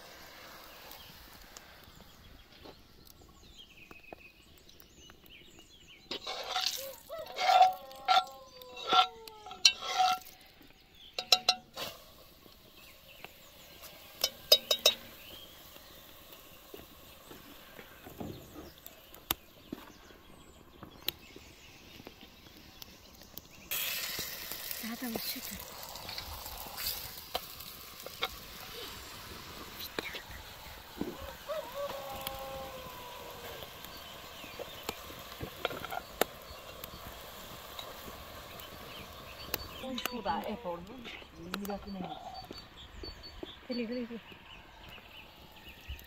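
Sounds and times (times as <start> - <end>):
metal spoon clinking on pot: 11.2 - 11.7, 14.2 - 15.1.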